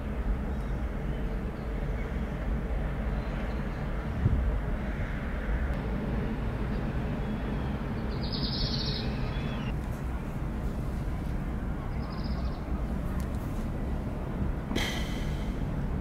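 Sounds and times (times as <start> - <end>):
low harbour rumble: 0.0 - 16.0
bird calling: 6.7 - 9.8.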